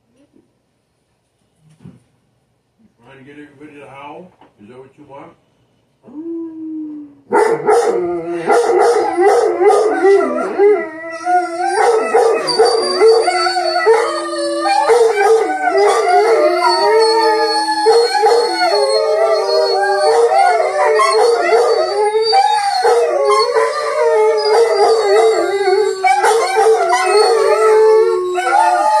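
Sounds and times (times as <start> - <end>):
dogs howling together: 6.1 - 29.0.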